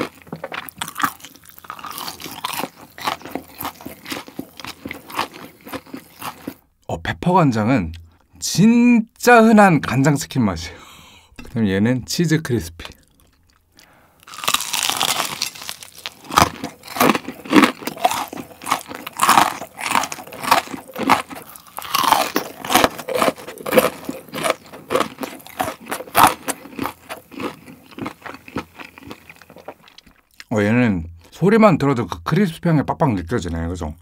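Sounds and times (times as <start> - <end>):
crunching and chewing fried chicken: 0.0 - 6.7, 12.8 - 30.5.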